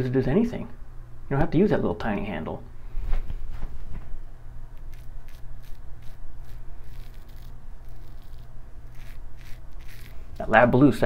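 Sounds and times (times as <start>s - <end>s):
low steady hum: 0.0s - 11.0s
razor scraping stubble: 4.8s - 10.9s.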